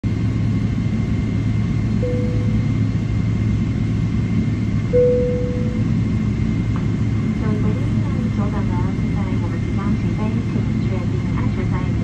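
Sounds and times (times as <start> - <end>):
aircraft cabin rumble: 0.1 - 12.0
short single tone: 2.0 - 2.8, 4.9 - 5.9.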